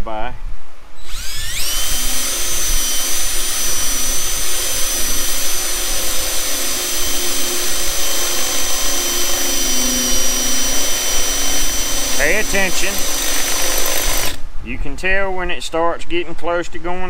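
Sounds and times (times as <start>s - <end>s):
cordless drill whining: 1.0s - 14.4s
drill bit cutting sheet metal: 1.0s - 14.4s.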